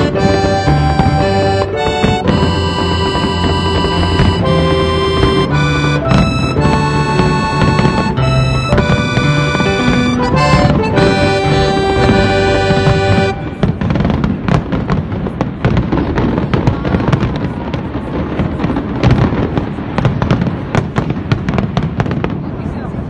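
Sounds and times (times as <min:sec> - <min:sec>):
music with steady notes: 0:00.0 - 0:14.2
fireworks bursting with crackles: 0:00.0 - 0:23.0.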